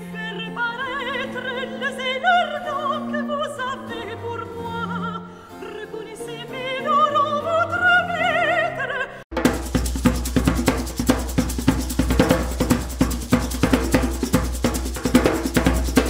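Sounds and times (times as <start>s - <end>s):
operatic singing with vibrato: 0.0s - 9.2s
classical accompaniment: 0.0s - 16.0s.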